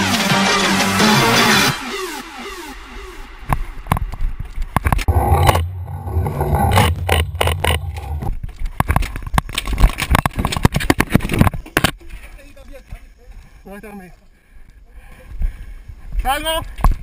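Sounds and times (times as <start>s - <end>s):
low hum: 2.7s - 8.5s.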